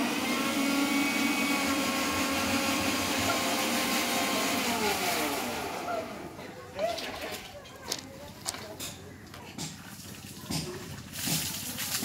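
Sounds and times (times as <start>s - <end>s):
motor hum: 0.0s - 6.5s.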